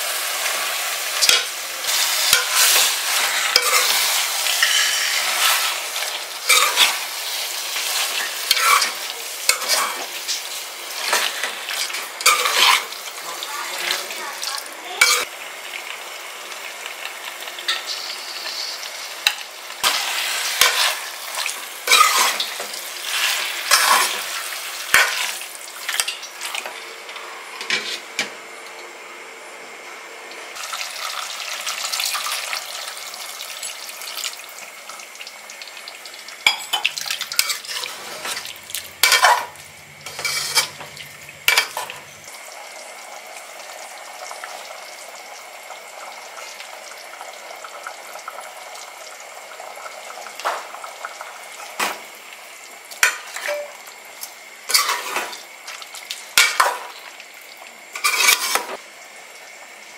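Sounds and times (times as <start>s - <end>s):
chicken sizzling: 0.0s - 59.9s
spoon scraping metal pot: 1.2s - 5.7s, 6.5s - 7.0s, 8.5s - 10.0s, 11.1s - 12.8s, 21.8s - 22.5s, 37.3s - 40.8s, 58.0s - 58.7s.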